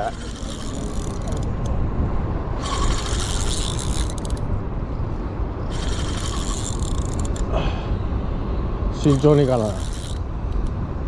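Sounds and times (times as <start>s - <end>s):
fishing reel whirring and clicking: 0.0s - 1.7s, 2.6s - 4.5s, 5.7s - 7.5s, 9.0s - 10.7s
wind rumbling on the microphone: 0.0s - 11.0s.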